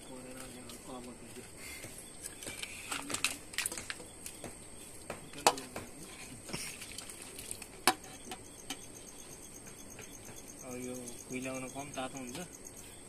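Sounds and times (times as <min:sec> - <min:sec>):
insects chirping: 0:00.0 - 0:13.0.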